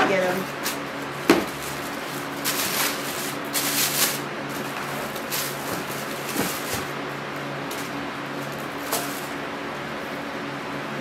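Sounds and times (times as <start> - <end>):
tissue paper rustling: 0.4 - 7.0.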